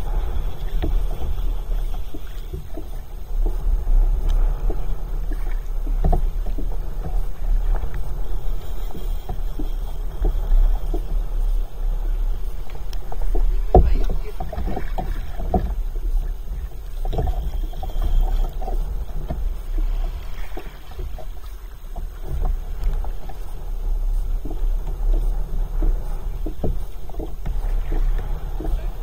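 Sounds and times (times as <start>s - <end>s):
steady low rumble: 0.0s - 29.0s
water slapping against kayak hull: 0.0s - 29.0s.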